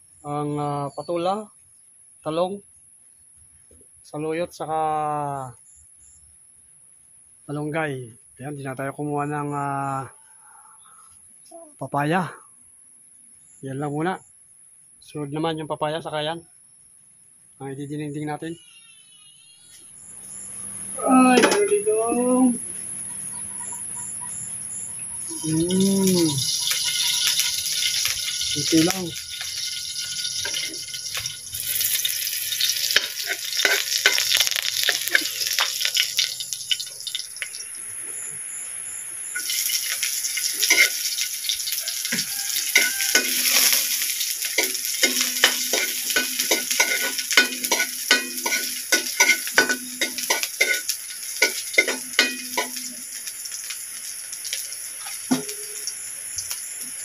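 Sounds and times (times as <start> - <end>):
onions sizzling in hot oil: 24.9 - 57.0
metal spatula scraping a wok: 26.5 - 36.3, 39.4 - 53.0.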